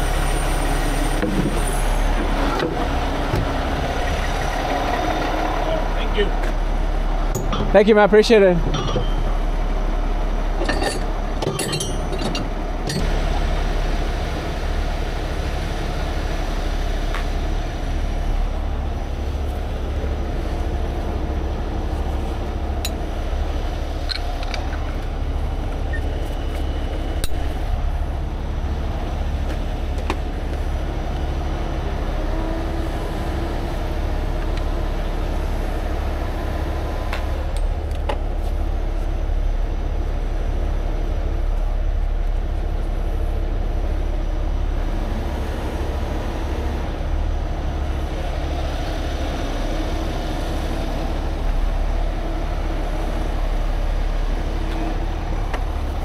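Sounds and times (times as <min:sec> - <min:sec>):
tow truck diesel engine idling: 0:00.0 - 0:56.0
metal chains clinking: 0:08.7 - 0:09.4, 0:10.6 - 0:13.0.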